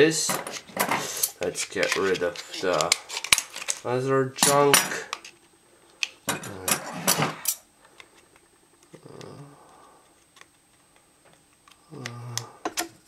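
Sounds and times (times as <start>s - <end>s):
plastic crackling: 0.5s - 6.3s.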